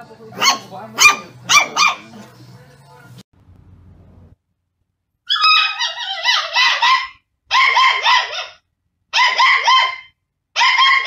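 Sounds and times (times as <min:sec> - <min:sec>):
puppy yapping: 0:00.4 - 0:02.0, 0:05.3 - 0:11.0.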